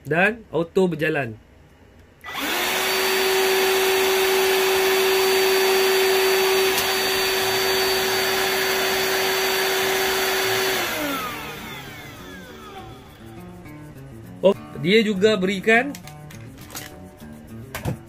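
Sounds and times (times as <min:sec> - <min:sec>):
vacuum motor high whine: 0:02.3 - 0:13.5.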